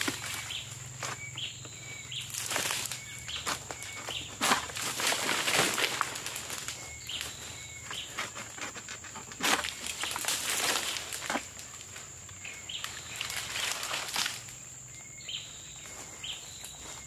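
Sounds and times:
bird chirps: 0:00.0 - 0:04.4, 0:06.5 - 0:08.4, 0:11.7 - 0:17.0
rustling and scraping: 0:00.0 - 0:14.6.

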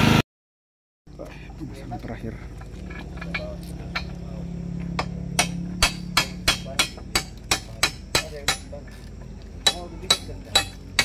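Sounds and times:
hammer striking steel plate: 0:04.9 - 0:08.8, 0:09.6 - 0:11.0.

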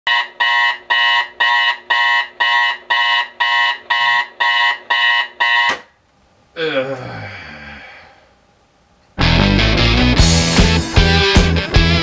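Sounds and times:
digital alarm clock beeping: 0:00.1 - 0:05.8.

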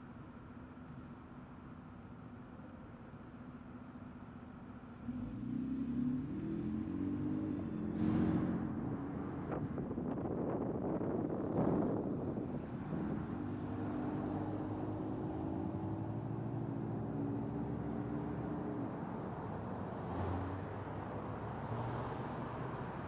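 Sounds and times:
car road noise: 0:05.0 - 0:23.0.

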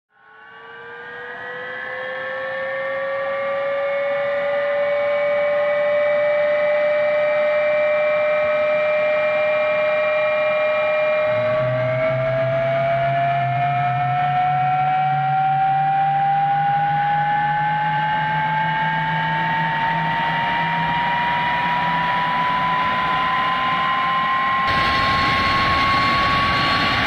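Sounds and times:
jet turbine whine rising: 0:00.1 - 0:27.0
low rumble: 0:24.7 - 0:27.0.

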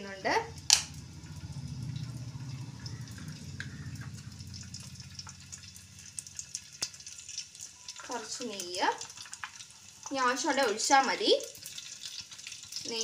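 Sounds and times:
low steady rumble: 0:00.0 - 0:07.2
hot oil crackling: 0:00.0 - 0:13.0.

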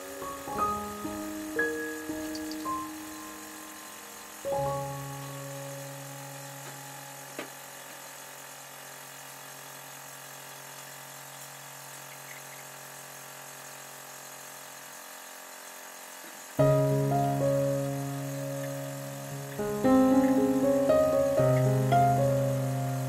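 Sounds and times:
quiet background music: 0:00.0 - 0:07.7, 0:16.6 - 0:23.0
steady hiss: 0:00.0 - 0:23.0.

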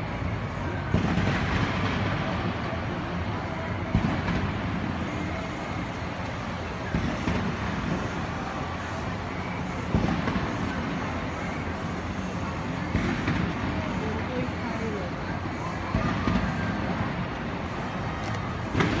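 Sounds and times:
steady background rumble: 0:00.0 - 0:19.0
distant fireworks booms: 0:00.8 - 0:11.6, 0:12.8 - 0:14.2, 0:15.9 - 0:17.3, 0:18.6 - 0:19.0.

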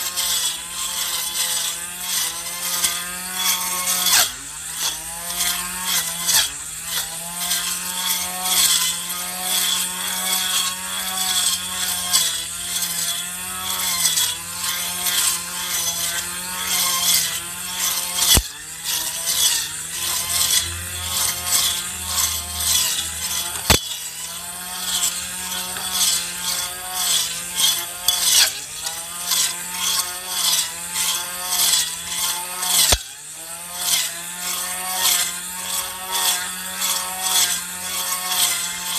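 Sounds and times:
grass trimmer running: 0:00.0 - 0:38.9
blade striking hard clicks: 0:19.3 - 0:30.6.

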